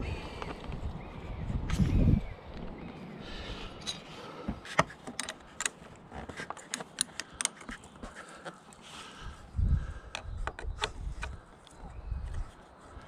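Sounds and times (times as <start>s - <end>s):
small metallic clicks: 3.8s - 8.8s, 10.1s - 11.8s.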